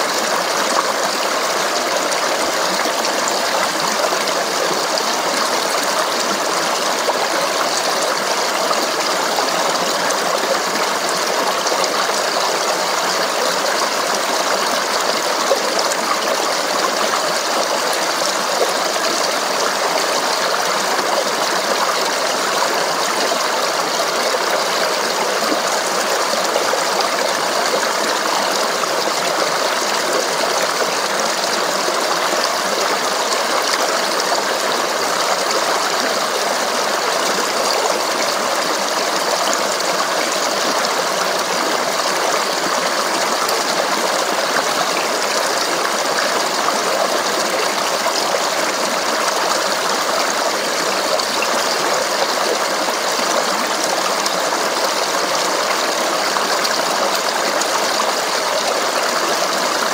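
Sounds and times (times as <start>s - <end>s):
stream water babbling: 0.0s - 59.9s.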